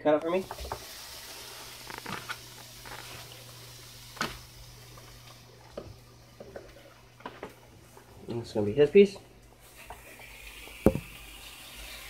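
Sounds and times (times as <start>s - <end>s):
faint hiss and hum: 0.0s - 12.0s.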